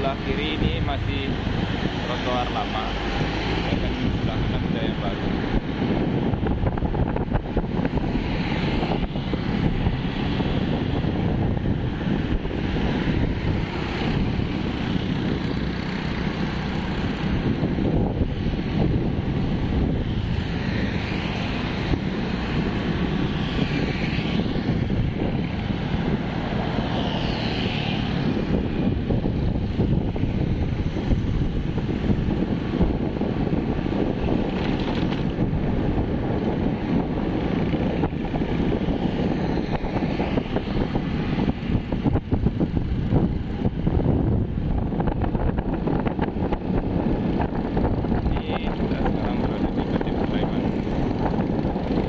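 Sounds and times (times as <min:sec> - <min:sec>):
motorcycle engine drone: 0:00.0 - 0:52.0
wind noise on microphone: 0:00.0 - 0:52.0.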